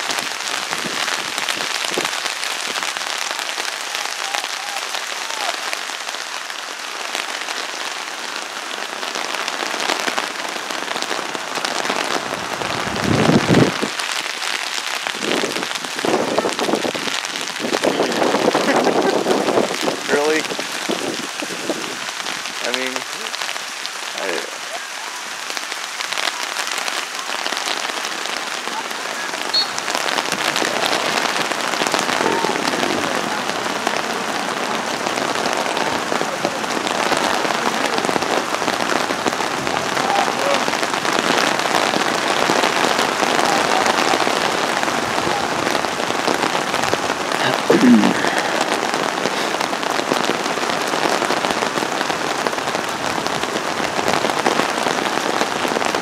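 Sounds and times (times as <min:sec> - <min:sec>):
heavy rain falling: 0:00.0 - 0:56.0
person shouting: 0:03.8 - 0:05.6, 0:32.2 - 0:33.0, 0:47.4 - 0:48.5.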